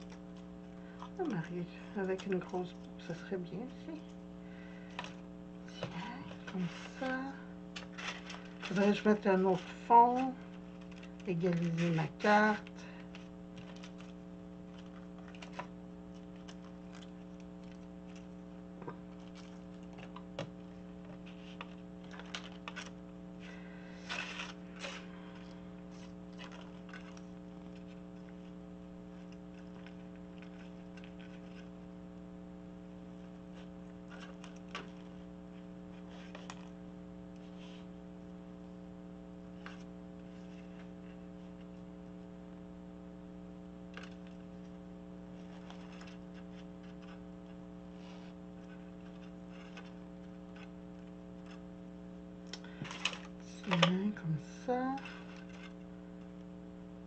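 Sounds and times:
electrical hum: 0.0s - 57.0s
ribbon and plastic sleeve rustling: 5.0s - 15.7s.

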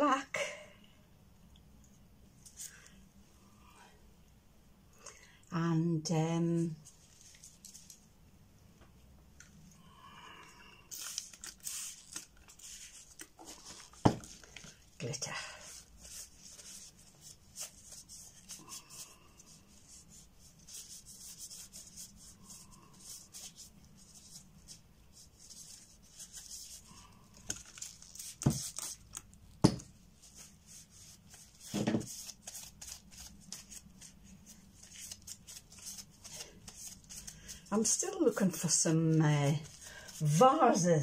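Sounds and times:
rubber gloves rustling: 6.8s - 8.2s, 10.8s - 41.0s
objects knocking on a table: 31.7s - 32.1s.

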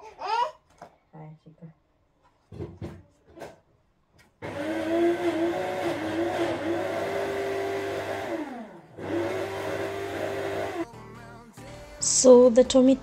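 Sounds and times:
electric blender motor running: 4.4s - 10.9s.

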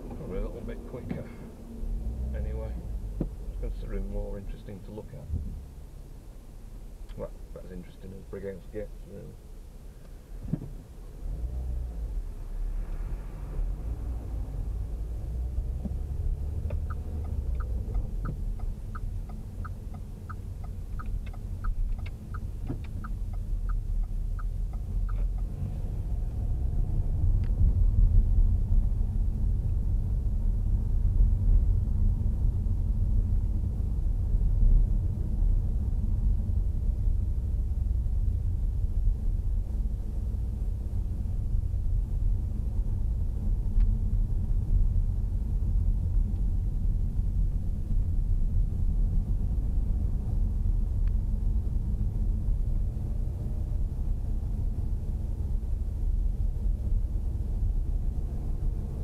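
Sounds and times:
car engine and road rumble: 0.0s - 59.0s
turn indicator ticking: 15.8s - 25.6s.

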